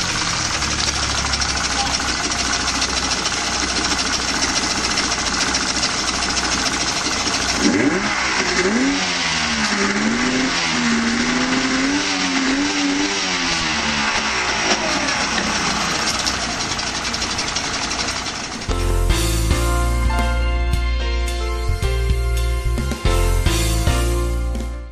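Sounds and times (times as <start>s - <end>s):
outboard motor running and revving: 0.0s - 18.6s.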